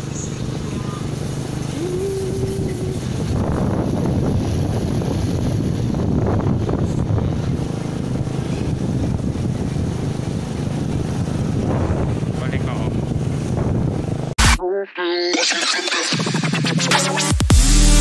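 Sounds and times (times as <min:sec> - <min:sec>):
wind buffeting microphone: 0:00.0 - 0:14.4
motorcycle engine running: 0:00.0 - 0:14.5.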